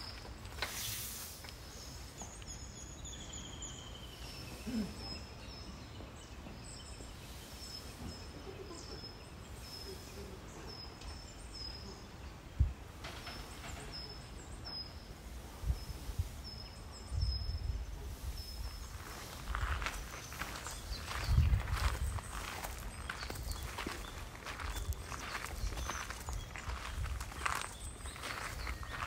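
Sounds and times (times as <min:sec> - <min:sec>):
footsteps: 0:18.6 - 0:29.0.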